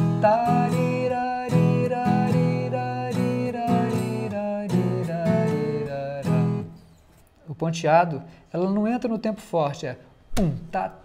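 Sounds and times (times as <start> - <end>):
ten-string guitar strumming chords: 0.0 - 6.8
picked guitar melody: 0.0 - 6.9.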